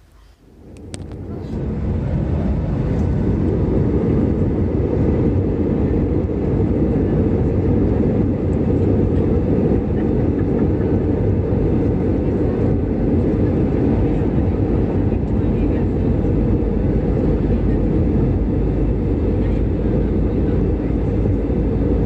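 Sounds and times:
airliner cabin rumble: 0.0 - 22.0.

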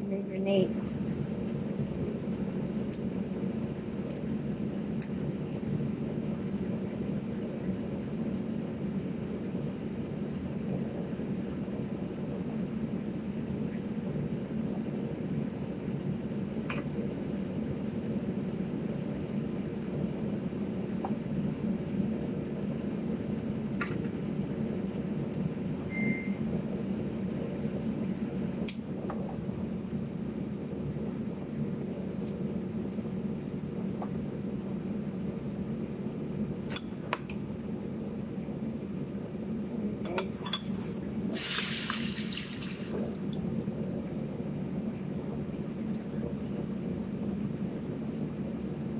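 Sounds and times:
low room hum: 0.0 - 48.9
short rushing hiss: 41.3 - 43.0.

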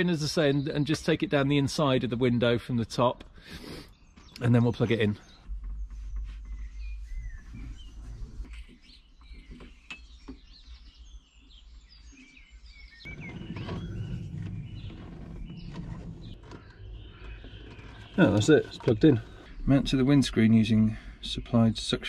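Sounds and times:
small birds chirping: 0.0 - 22.0
cable knocking and rustling: 13.1 - 19.5.

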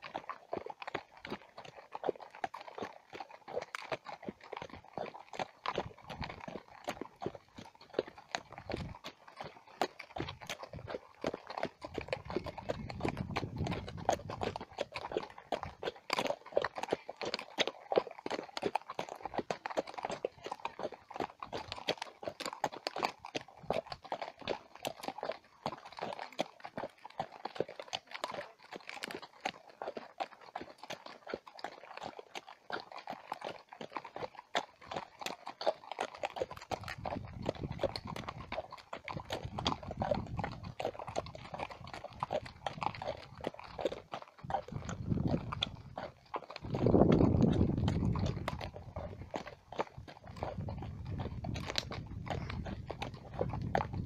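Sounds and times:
horse hooves on dirt: 0.0 - 54.0.

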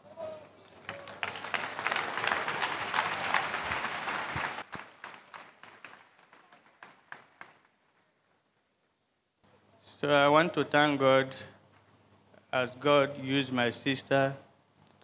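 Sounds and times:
congregation applauding: 0.6 - 8.0.

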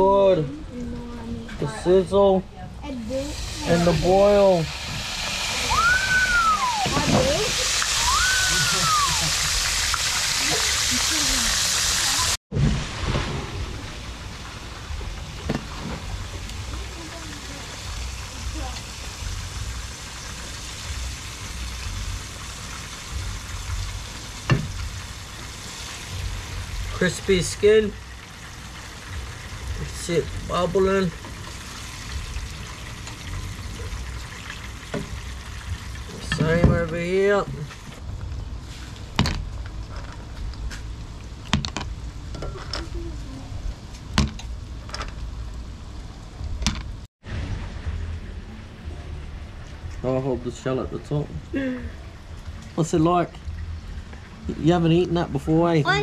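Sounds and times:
fish sizzling in a pan: 3.2 - 13.1, 16.0 - 36.4.

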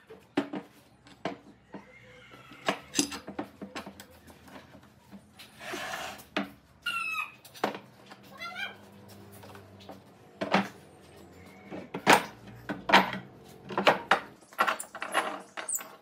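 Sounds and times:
metal clamps clinking on pipes: 2.9 - 3.4
wood scraping on bench: 5.4 - 6.6.

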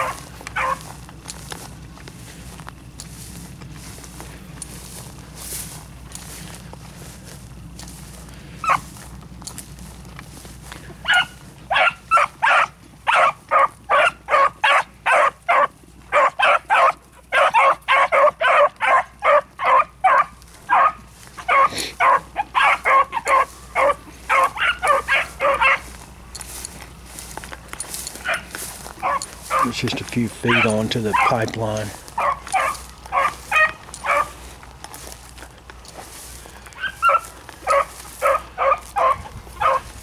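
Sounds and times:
dogs barking: 0.0 - 1.0, 8.5 - 9.0, 10.7 - 35.2, 36.6 - 40.0.

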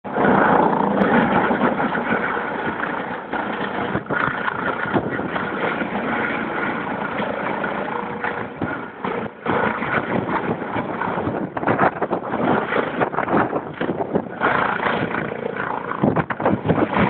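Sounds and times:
helicopter hovering: 0.0 - 17.0.

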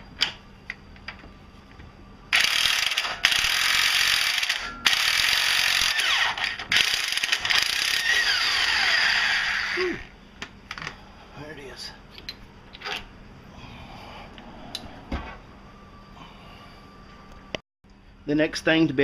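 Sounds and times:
electric impact wrench hammering: 2.3 - 10.1.

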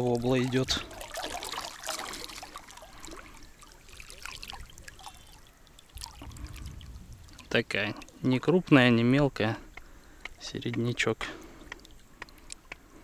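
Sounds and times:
water trickling and splashing: 0.0 - 12.6
small clicks and rustles: 11.7 - 12.8.

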